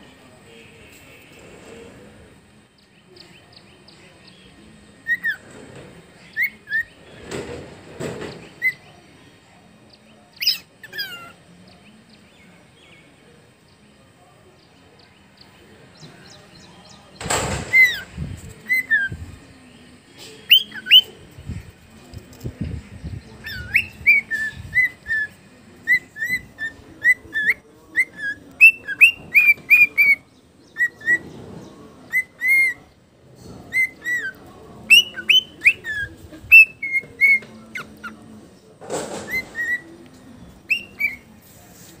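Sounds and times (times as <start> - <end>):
cockatiel whistling: 23.4 - 25.3, 40.7 - 41.2.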